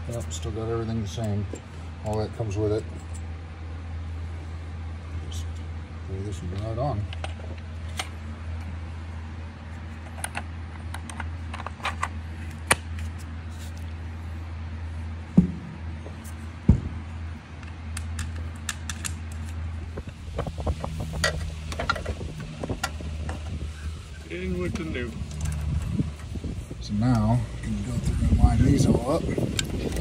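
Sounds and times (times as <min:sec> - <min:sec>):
steady low hum: 0:00.0 - 0:30.0
loud knocks: 0:15.4 - 0:15.8, 0:16.6 - 0:17.0.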